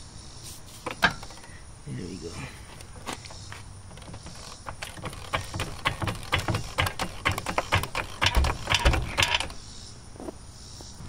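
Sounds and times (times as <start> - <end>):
hydraulic jack clicking: 0.8 - 1.6, 2.8 - 9.7
heavy thumps: 2.7 - 9.6.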